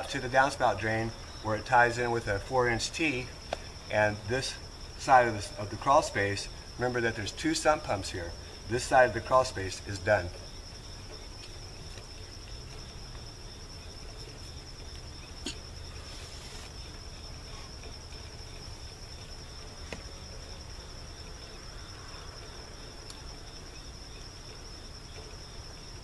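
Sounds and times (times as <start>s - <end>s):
crickets trilling: 0.0s - 26.0s.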